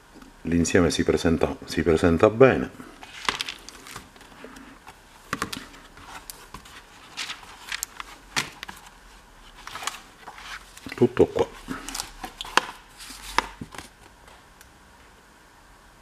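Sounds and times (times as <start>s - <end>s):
stiff pages turning: 3.0s - 14.1s.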